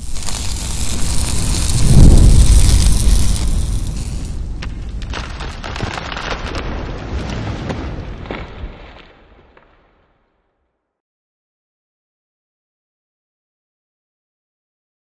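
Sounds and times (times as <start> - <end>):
low rumble: 0.0 - 5.7.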